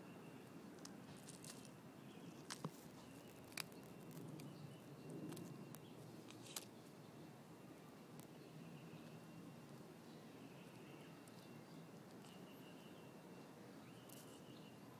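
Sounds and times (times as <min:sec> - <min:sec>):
tortoise crunching food: 0:00.6 - 0:07.0.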